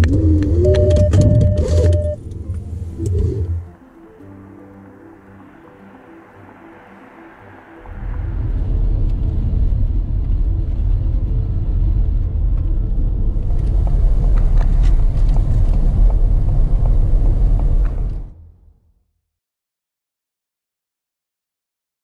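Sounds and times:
car driving low rumble: 0:00.0 - 0:04.1, 0:05.4 - 0:18.8.

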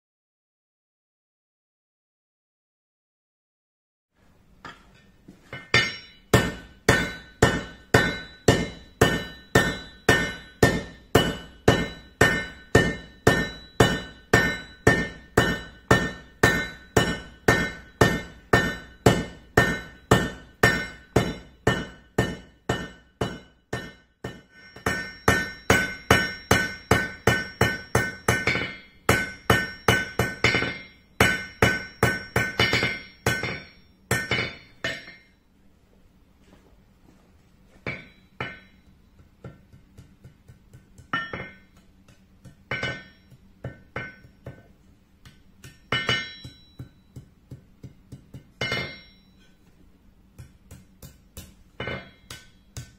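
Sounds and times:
hammer ringing on anvil: 0:04.6 - 0:35.4, 0:37.8 - 0:49.7, 0:50.4 - 0:52.9.

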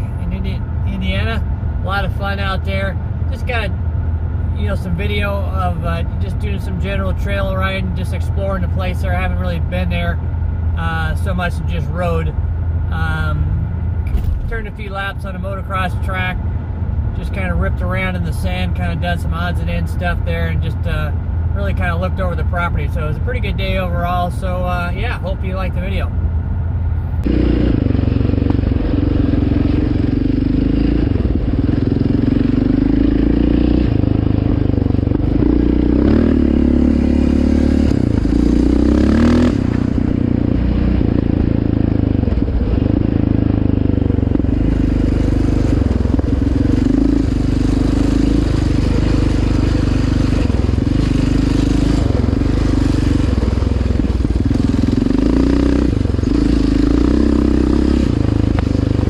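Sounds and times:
quad engine revving: 0:27.2 - 0:59.0.

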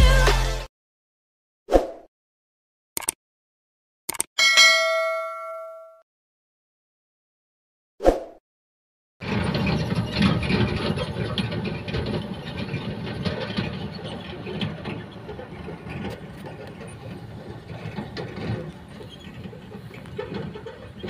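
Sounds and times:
truck clattering: 0:09.2 - 0:21.0.

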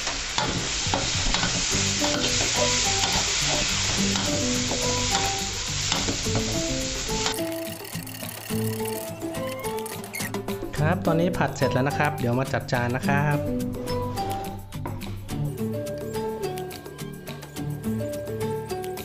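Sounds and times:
spatula scraping wok: 0:00.0 - 0:09.1
food sizzling in a wok: 0:00.0 - 0:09.3
faint background music: 0:00.9 - 0:19.0.

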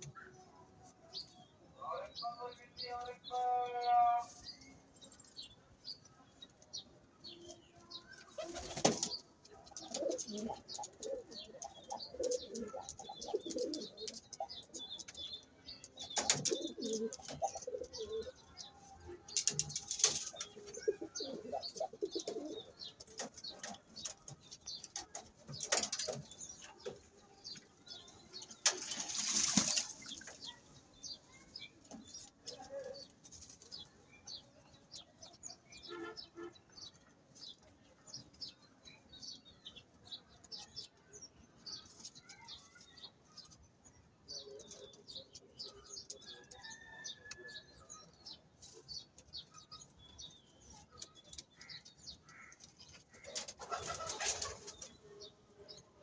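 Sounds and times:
pigeons cooing: 0:08.3 - 0:15.0, 0:16.0 - 0:18.4, 0:19.4 - 0:24.3
wings flapping: 0:28.7 - 0:30.2.

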